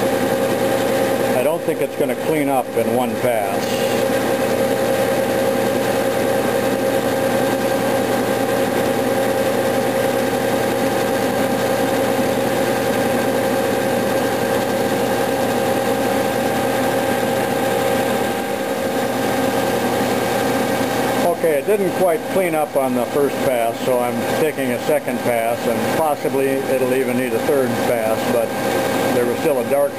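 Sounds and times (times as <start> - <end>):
lathe tool bit cutting copper: 0.0 - 29.9
metal lathe humming: 0.0 - 29.9.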